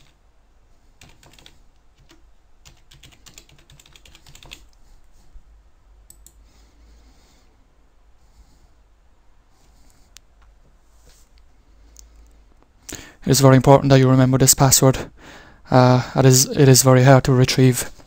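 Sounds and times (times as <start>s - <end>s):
computer keyboard typing: 1.0s - 4.8s, 6.1s - 6.4s.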